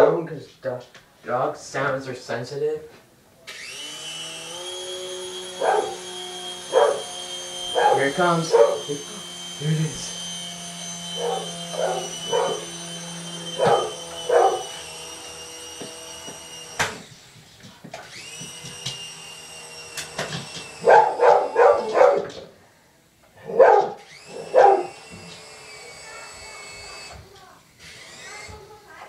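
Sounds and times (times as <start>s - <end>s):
toy helicopter motor whine: 3.5s - 17.3s, 18.0s - 22.2s, 23.7s - 29.0s
dog barking: 5.6s - 6.0s, 6.7s - 7.1s, 7.8s - 9.0s, 11.2s - 12.7s, 13.6s - 14.8s, 20.8s - 22.5s, 23.4s - 24.9s.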